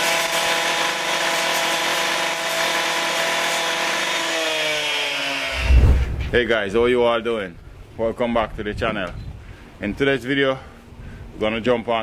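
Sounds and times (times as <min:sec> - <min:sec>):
cut-off saw cutting stone: 0:00.0 - 0:05.7.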